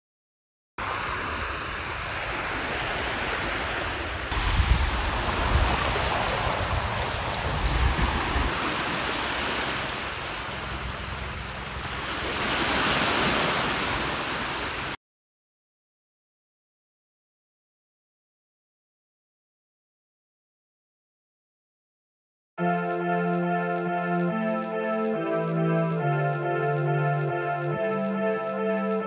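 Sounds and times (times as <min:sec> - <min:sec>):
small waves washing onto sand: 0:00.8 - 0:15.0.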